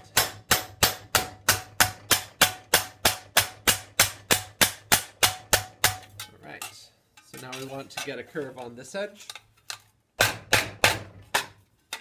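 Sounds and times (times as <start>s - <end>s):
mallet hammering sheet metal: 0.0s - 6.8s, 10.2s - 12.0s.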